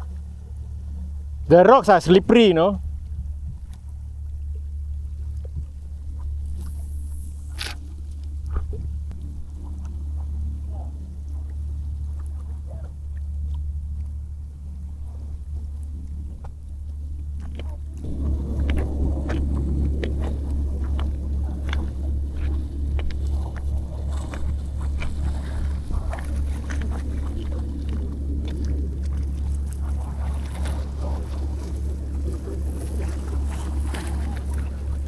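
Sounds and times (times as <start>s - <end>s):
low rumble: 0.0s - 35.0s
waves splashing against seawall: 17.3s - 35.0s.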